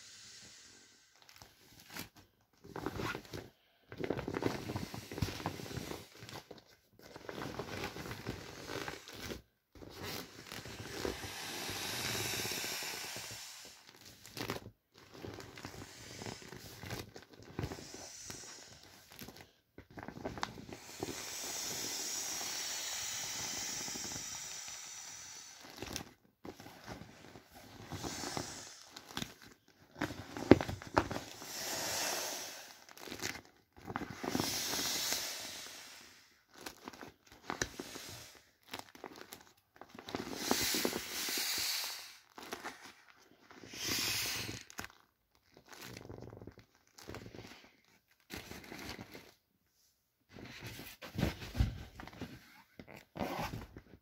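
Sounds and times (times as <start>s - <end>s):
air hissing from inflatable boat: 0.0s - 1.1s, 10.7s - 13.9s, 17.7s - 18.8s, 20.8s - 25.6s, 27.8s - 28.9s, 31.3s - 32.9s, 34.3s - 36.2s, 37.7s - 38.4s, 40.3s - 42.2s, 43.7s - 44.7s
plastic crinkling: 13.8s - 21.2s, 38.6s - 41.0s, 44.4s - 49.4s.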